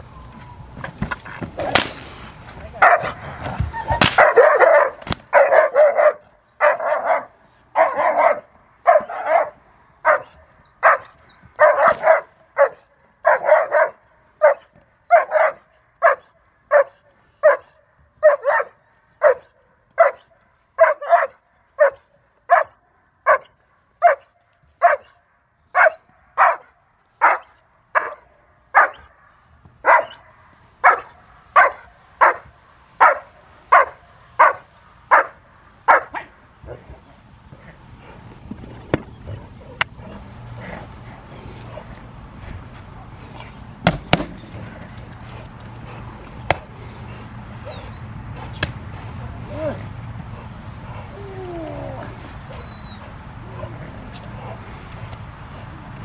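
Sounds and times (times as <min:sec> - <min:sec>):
dog barking: 0:02.8 - 0:03.2, 0:03.9 - 0:29.1, 0:29.8 - 0:36.3.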